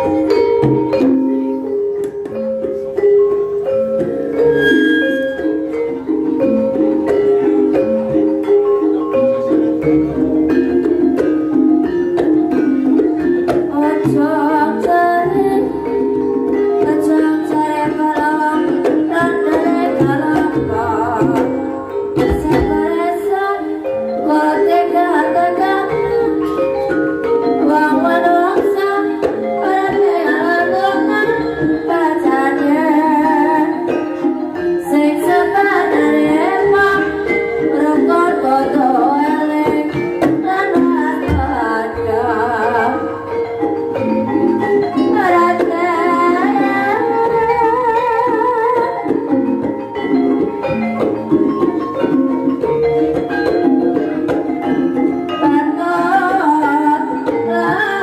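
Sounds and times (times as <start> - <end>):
gamelan music: 0.0 - 58.0
tuned mallet percussion: 0.0 - 58.0
person singing: 12.5 - 26.7, 27.4 - 43.4.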